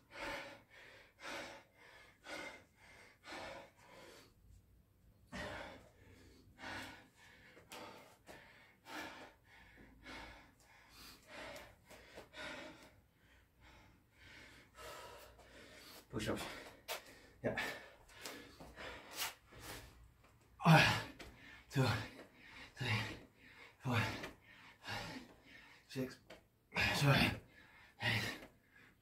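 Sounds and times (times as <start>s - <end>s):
man breathing hard: 0.0s - 29.0s.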